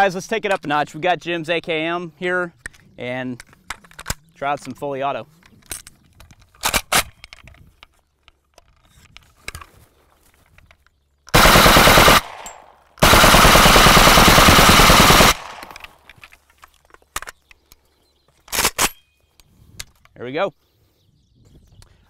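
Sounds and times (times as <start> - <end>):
rifle fired on full auto: 11.3 - 15.9.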